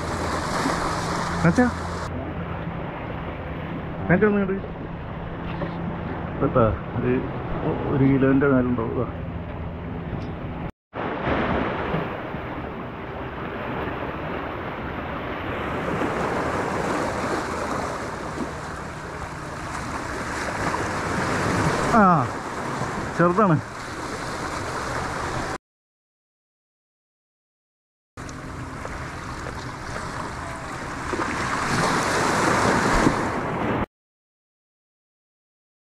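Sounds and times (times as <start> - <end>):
sea waves breaking on concrete: 0.0 - 2.1, 11.0 - 25.6, 28.8 - 33.8.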